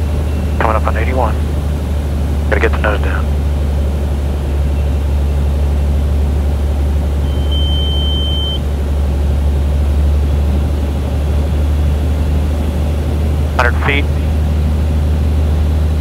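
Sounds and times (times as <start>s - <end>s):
aircraft engine idling drone: 0.0s - 16.0s
high steady beep: 7.2s - 8.6s.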